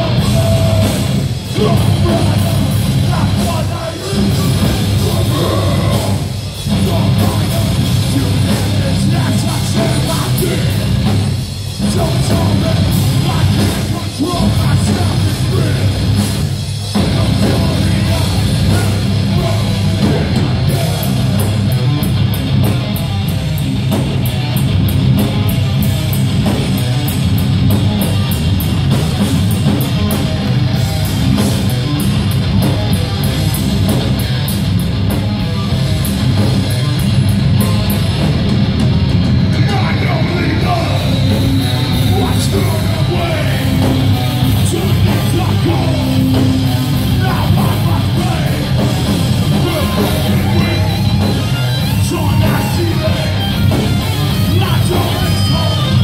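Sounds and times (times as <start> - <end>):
vocalist singing: 0.0 - 21.8, 39.4 - 56.0
bass guitar: 0.0 - 56.0
distorted electric guitars: 0.0 - 56.0
drums: 0.0 - 56.0.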